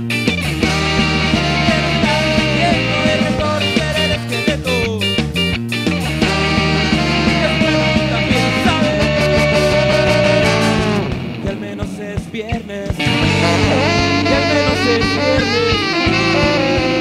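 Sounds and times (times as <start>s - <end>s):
live rock band playing: 0.0s - 17.0s
man singing: 0.6s - 17.0s
drum hits: 5.9s - 16.6s.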